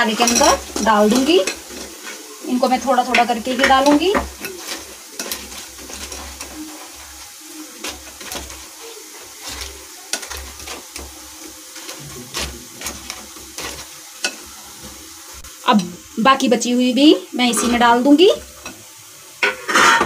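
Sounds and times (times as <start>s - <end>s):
hand mixing food squelching: 0.0s - 15.4s
onions sizzling in oil: 0.0s - 20.0s.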